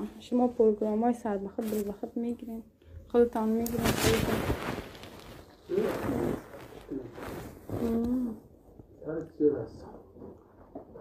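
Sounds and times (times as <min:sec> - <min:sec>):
person humming: 0:07.8 - 0:08.4.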